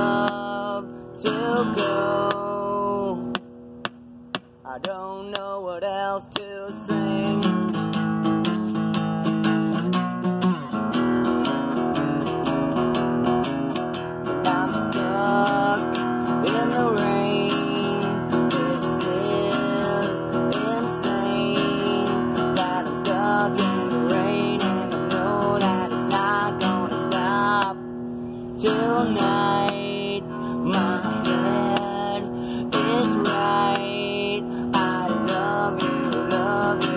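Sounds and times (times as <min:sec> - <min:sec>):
man singing: 0:00.0 - 0:03.4, 0:04.6 - 0:08.6, 0:14.2 - 0:27.8, 0:28.6 - 0:36.9
acoustic guitar strumming: 0:00.0 - 0:36.9.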